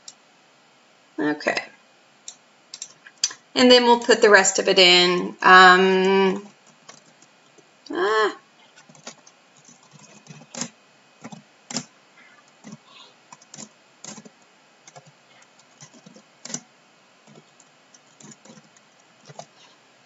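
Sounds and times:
typing on computer keyboard: 6.4s - 7.3s, 8.8s - 11.9s, 12.5s - 16.6s, 17.2s - 19.7s.

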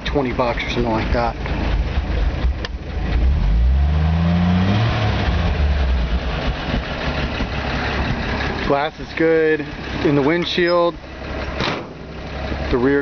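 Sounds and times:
pickup truck engine idling: 0.0s - 3.4s, 5.3s - 13.0s
engine revving: 1.6s - 8.6s.

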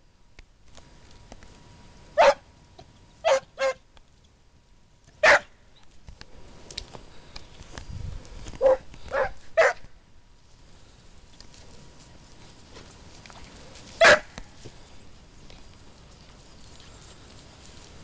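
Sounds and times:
dog barking: 2.2s - 2.4s, 3.2s - 3.8s, 5.2s - 5.5s, 8.6s - 9.8s, 14.0s - 14.3s.

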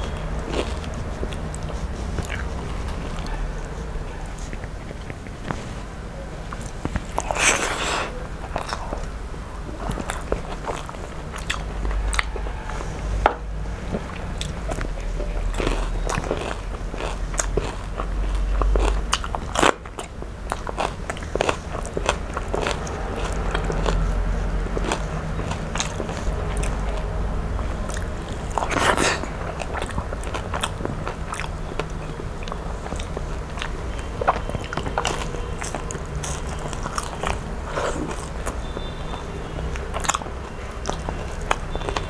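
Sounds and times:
person chewing crunchy food: 0.0s - 42.0s
wet mouth clicks: 0.1s - 3.2s.

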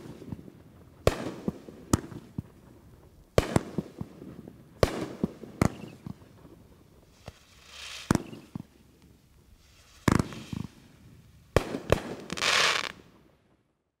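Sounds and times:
firework bangs: 0.0s - 2.7s, 3.3s - 8.8s, 9.6s - 13.0s
firework hissing and crackling: 7.0s - 13.0s.

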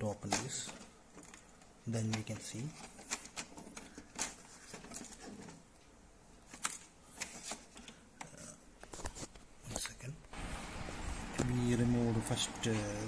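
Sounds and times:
hands handling plastic printer: 0.1s - 10.0s.

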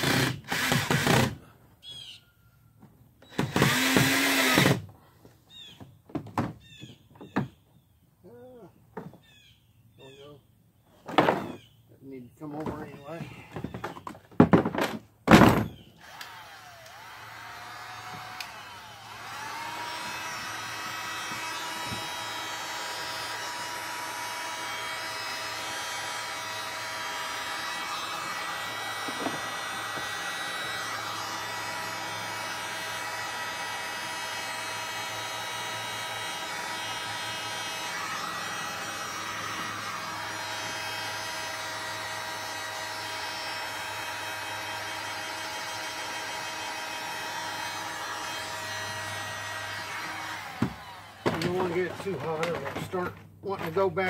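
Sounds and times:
heat gun fan whining: 0.0s - 2.1s, 3.2s - 4.9s, 15.3s - 54.0s.

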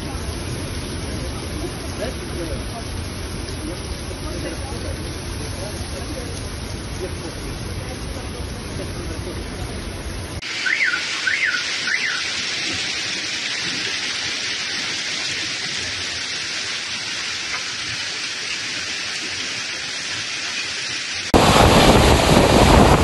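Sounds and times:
heavy rain hissing: 0.0s - 23.0s
wailing alarm: 10.4s - 12.4s.

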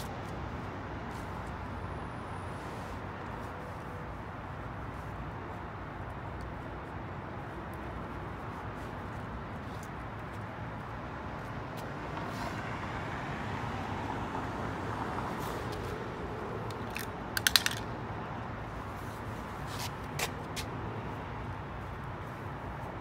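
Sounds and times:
street traffic: 0.0s - 23.0s
car passing: 11.5s - 18.0s
spring clamps clicking on concrete: 16.7s - 17.8s.

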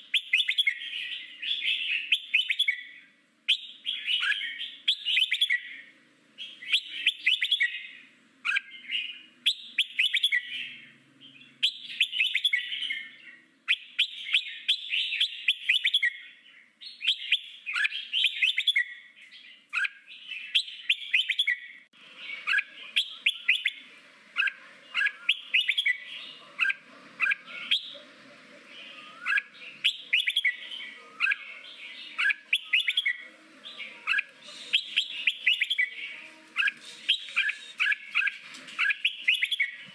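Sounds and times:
bird chattering and whistling: 0.0s - 16.3s, 16.9s - 19.0s, 19.7s - 28.0s, 28.6s - 39.8s.

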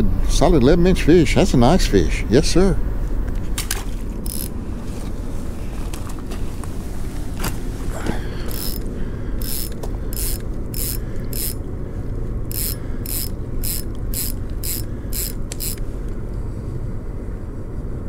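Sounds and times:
fishing reel drag ratcheting: 3.7s - 4.6s, 8.5s - 11.6s, 12.5s - 15.9s.

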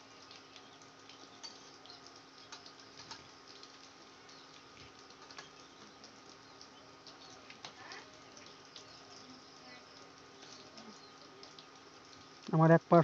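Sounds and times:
deep-frying sizzle with pops: 0.0s - 13.0s.

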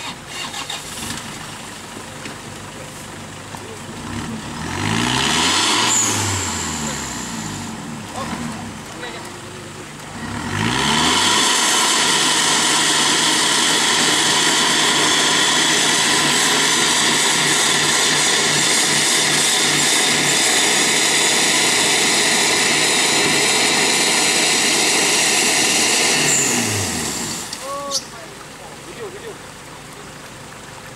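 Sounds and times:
engine revving at high revs: 4.0s - 9.1s, 10.1s - 27.6s.

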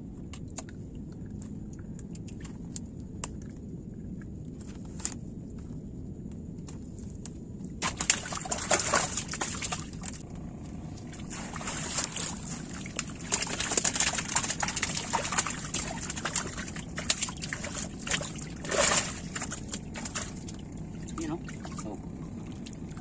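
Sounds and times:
water splashing and dripping: 7.8s - 10.2s, 11.0s - 23.0s.

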